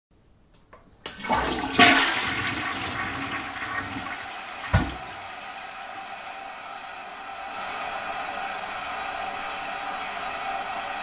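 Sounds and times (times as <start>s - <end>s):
toilet bowl gulp: 1.0s - 5.5s
toilet flushing: 1.0s - 6.3s.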